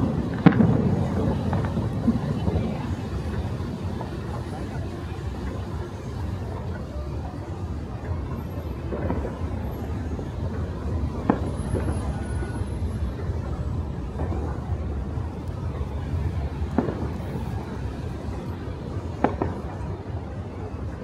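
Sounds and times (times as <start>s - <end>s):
faint voices: 0.0s - 21.0s
traffic rumble: 0.0s - 21.0s.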